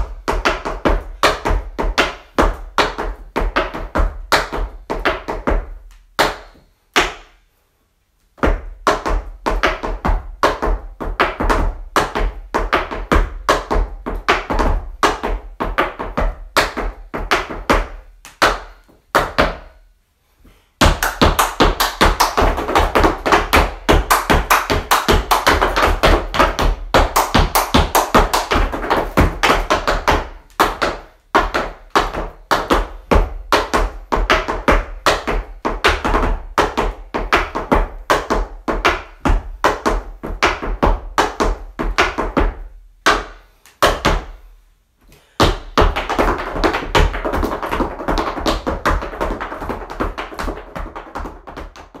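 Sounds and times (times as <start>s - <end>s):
music with quick percussive taps: 8.4s - 19.6s, 20.8s - 44.3s, 45.4s - 52.0s.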